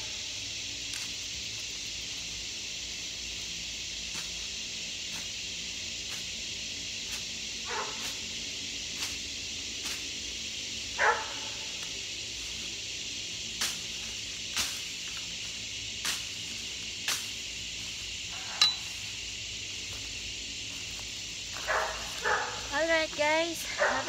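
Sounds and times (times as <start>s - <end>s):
steady high hiss: 0.0s - 24.0s
blade chopping through grass: 13.6s - 15.0s.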